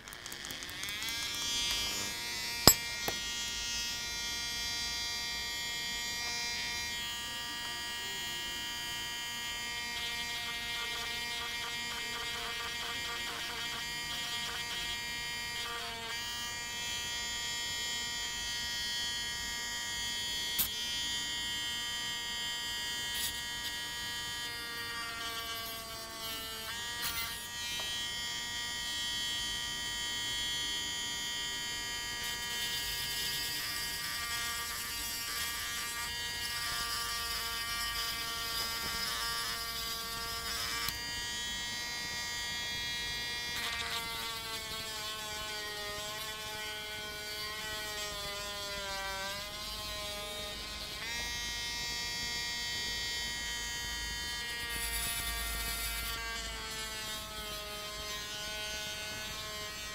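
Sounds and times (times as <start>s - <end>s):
grinding stone sanding plastic: 0.0s - 3.4s
rotary tool motor whining: 0.0s - 3.8s, 32.2s - 51.3s, 54.0s - 59.9s.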